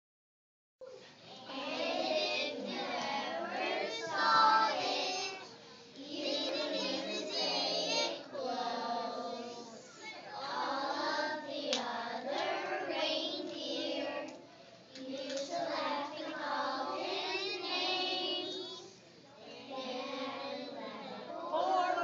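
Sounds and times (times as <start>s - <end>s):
children singing in unison: 1.4s - 14.4s, 15.0s - 18.9s.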